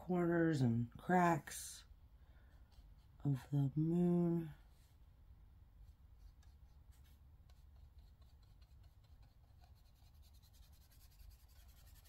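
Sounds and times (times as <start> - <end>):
scratchy strokes on paper: 5.8 - 12.0.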